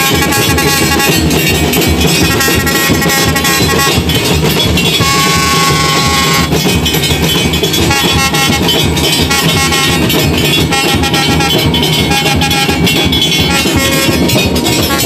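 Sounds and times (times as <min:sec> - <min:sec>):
long horn-like tones: 0:00.0 - 0:01.2, 0:02.3 - 0:04.1, 0:05.0 - 0:06.5, 0:07.8 - 0:15.0
street procession din: 0:00.0 - 0:15.0.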